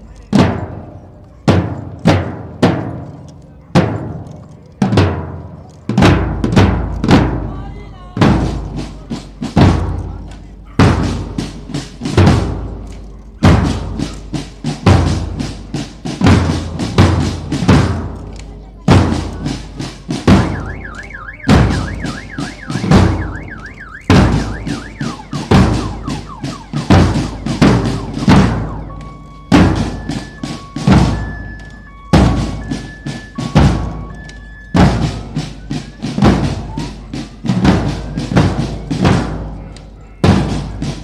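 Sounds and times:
snare drums: 0.0 - 41.0
bass drums beating: 5.9 - 41.0.

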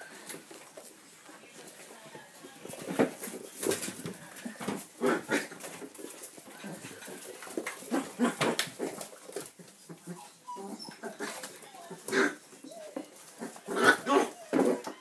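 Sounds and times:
puppies yapping: 7.2 - 15.0
puppies whimpering: 9.0 - 15.0.

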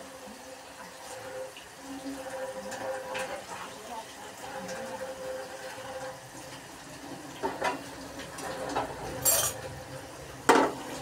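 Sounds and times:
fries sizzling in hot oil: 0.0 - 11.0
metal skimmer scraping pan: 7.4 - 9.7.

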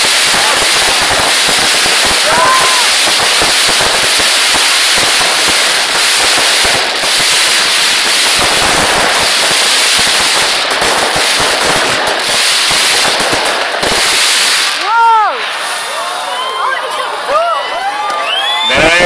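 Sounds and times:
fireworks bangs and crackles: 0.0 - 17.4.

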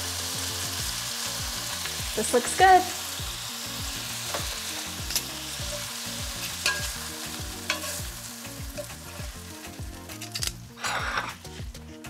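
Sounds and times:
chicken sizzling in oil: 0.0 - 11.8
metal tongs clicking on pan: 5.1 - 5.8, 6.4 - 7.0, 7.6 - 8.1, 8.8 - 9.0, 10.1 - 10.6.

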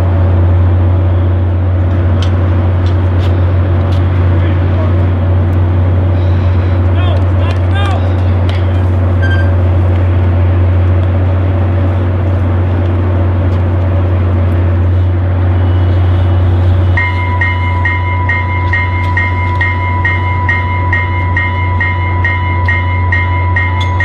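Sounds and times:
train idling drone: 0.0 - 24.0
electronic locomotive bell ringing: 15.5 - 24.0.

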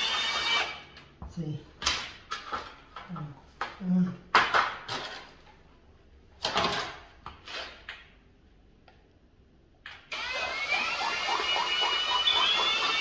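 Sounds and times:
cordless drill motor whine: 0.0 - 0.8, 10.1 - 13.0.

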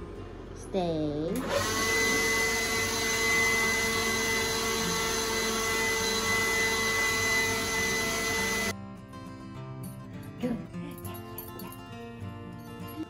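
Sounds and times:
blower rushing air with motor whine: 1.3 - 8.7.

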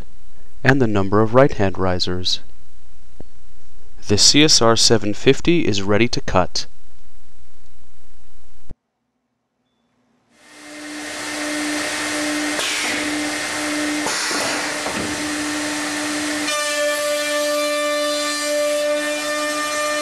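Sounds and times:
router spindles whining: 10.4 - 20.0
rush of air: 10.5 - 16.5.

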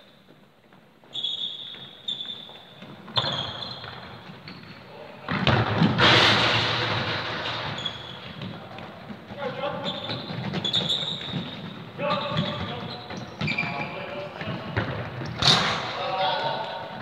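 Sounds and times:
football kicked and bouncing: 5.2 - 6.0, 14.4 - 15.7
loud echoing impact: 5.3 - 8.2, 14.4 - 17.0.

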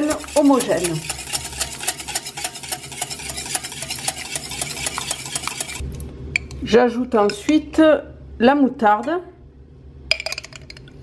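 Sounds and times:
whisk clicking in bowl: 0.0 - 5.8.

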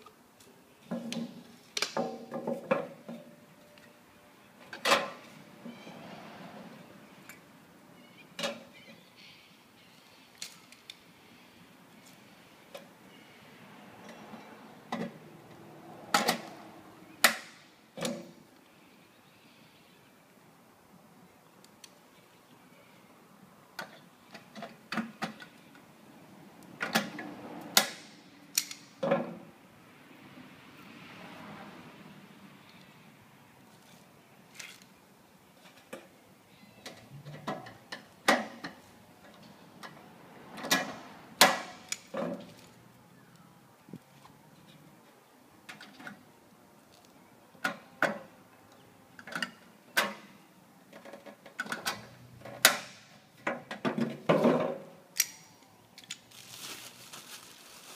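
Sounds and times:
metallic clicks and snaps: 26.8 - 28.9, 55.1 - 56.3.

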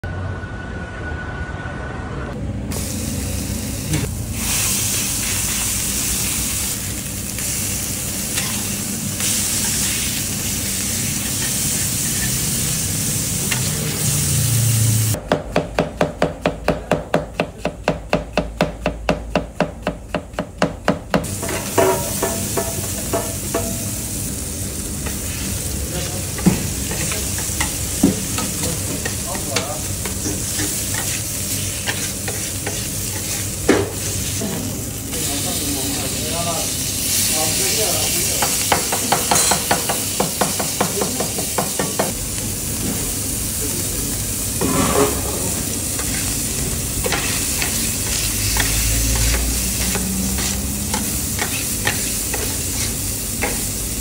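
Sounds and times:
food sizzling on a griddle: 2.7 - 15.2, 21.2 - 54.0
metal spatula scraping: 30.0 - 34.2.

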